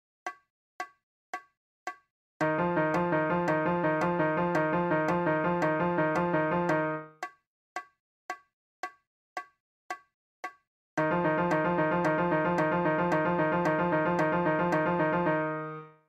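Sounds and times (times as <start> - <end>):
metronome clicks: 2.4 - 7.0, 11.0 - 15.4.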